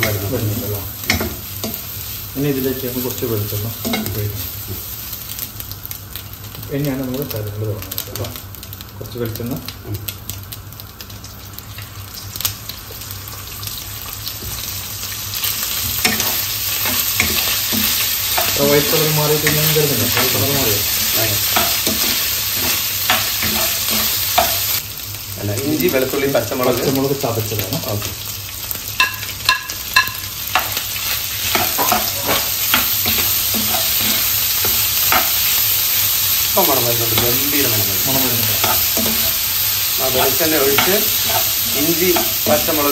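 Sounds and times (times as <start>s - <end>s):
chicken sizzling in oil: 0.0s - 42.9s
spoon scraping a pan: 29.0s - 35.7s, 38.1s - 39.6s, 40.2s - 42.9s
spatula scraping a wok: 30.6s - 35.7s.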